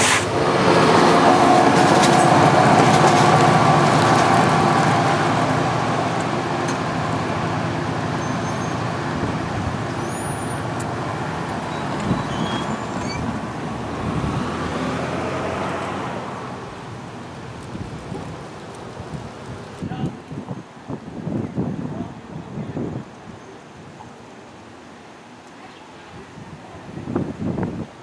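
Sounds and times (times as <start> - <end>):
train whine: 0.0 - 18.8
train rumbling along rails: 0.0 - 23.2.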